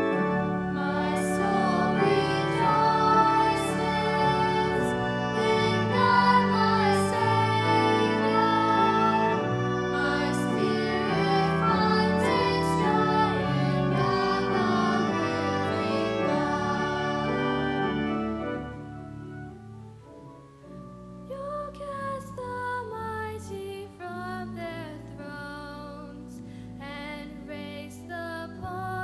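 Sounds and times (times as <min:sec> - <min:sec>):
girls singing a hymn: 0:00.0 - 0:18.1, 0:21.3 - 0:29.0
instrumental accompaniment: 0:00.0 - 0:21.6
girl singing: 0:00.8 - 0:09.3, 0:21.3 - 0:29.0.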